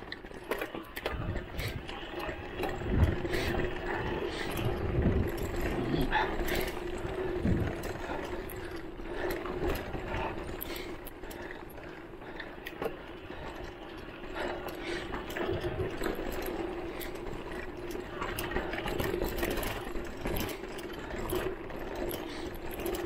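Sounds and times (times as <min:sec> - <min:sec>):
bike rattling over bumps: 0:00.0 - 0:23.0.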